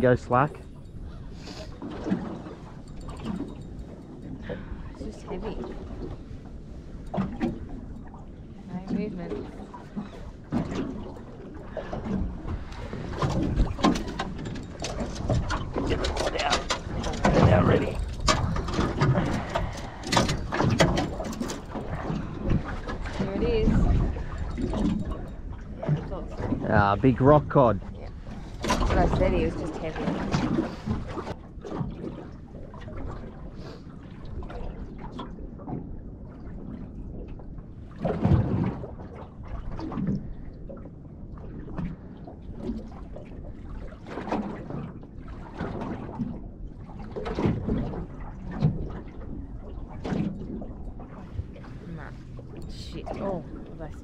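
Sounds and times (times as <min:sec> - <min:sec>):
low rumble: 0:00.0 - 0:31.5
low rush of open water: 0:00.0 - 0:54.0
water lapping against boat hull: 0:00.0 - 0:54.0.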